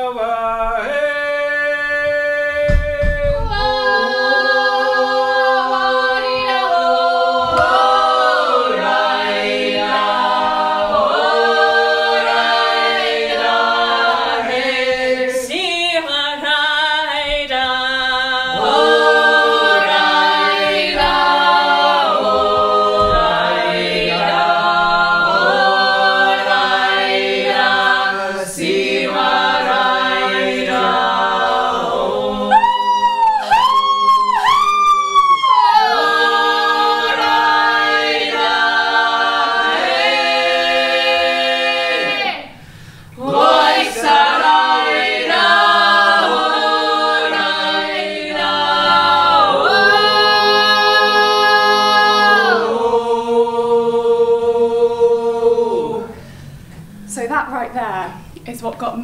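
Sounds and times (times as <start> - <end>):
a cappella vocal harmony: 0.0 - 59.0
low thud: 2.6 - 3.9, 22.4 - 24.1.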